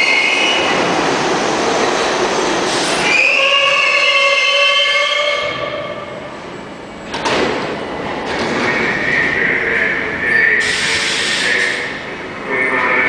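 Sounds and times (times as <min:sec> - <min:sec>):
subway doors knocking open: 0:05.4 - 0:09.1
loud air hiss: 0:10.6 - 0:11.9.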